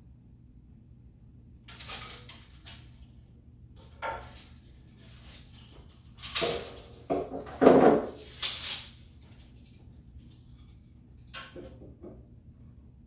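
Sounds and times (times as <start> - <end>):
board clattering on platform: 6.3 - 8.4
wooden board knocking and rustling: 6.4 - 8.3.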